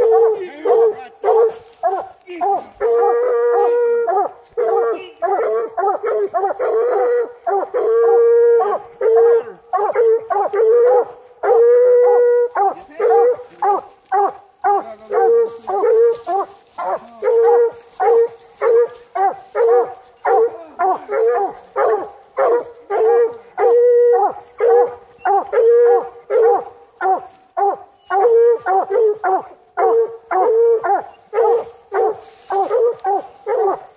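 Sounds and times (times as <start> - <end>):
dog howling: 0.0 - 33.8
dog chop barking: 0.1 - 3.1, 9.8 - 11.1, 24.6 - 33.9.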